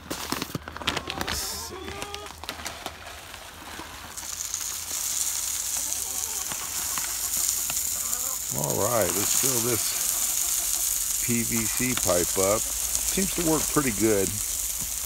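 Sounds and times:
steady high hiss: 4.1s - 15.0s
chicken call: 5.6s - 14.4s.

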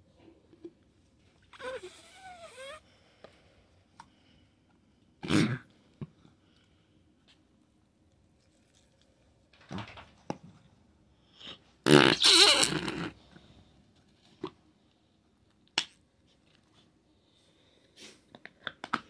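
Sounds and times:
putty air squeezing fart-like noise: 1.6s - 2.8s, 11.8s - 13.2s.

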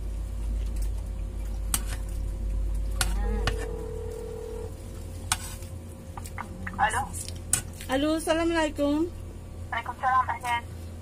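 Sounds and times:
phone ringback tone: 3.2s - 4.8s.

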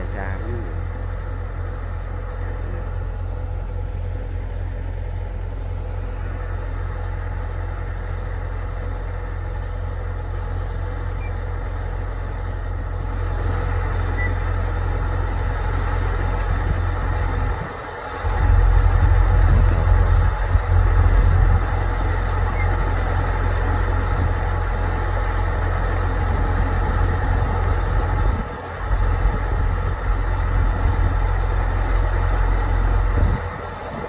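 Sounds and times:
combine harvester engine droning: 0.0s - 34.0s.

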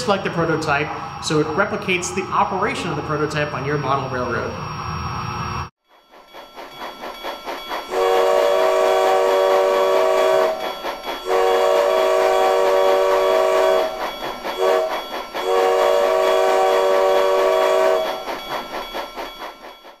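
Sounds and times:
rhythmic steam engine chuffing: 5.8s - 20.0s
steam locomotive whistle blasts: 7.9s - 18.4s.

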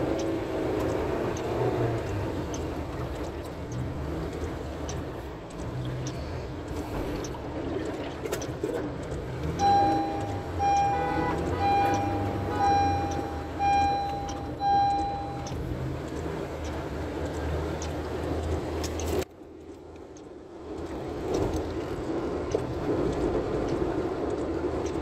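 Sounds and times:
engines in slow traffic: 0.0s - 25.0s
vehicle warning beeps: 9.4s - 15.7s.

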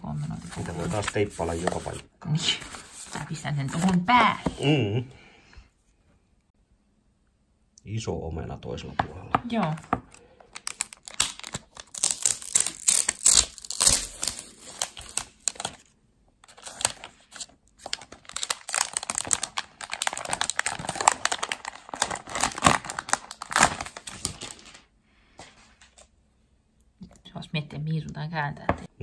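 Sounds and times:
plastic film peeling and crinkling: 10.1s - 24.9s.

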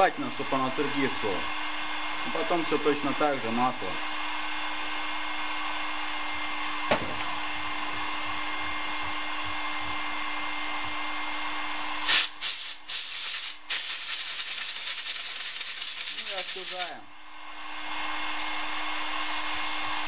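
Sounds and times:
compressed air blow gun hissing: 12.0s - 17.0s, 18.4s - 20.0s.

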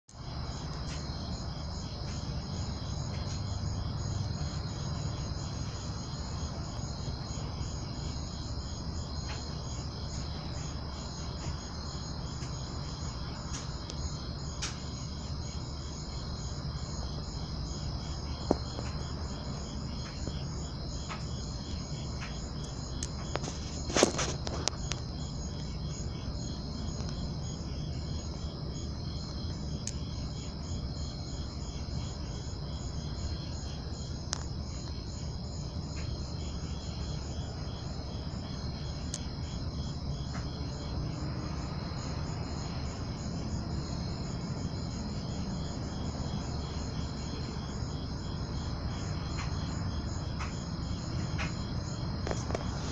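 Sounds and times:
crickets chirping: 0.1s - 52.9s.

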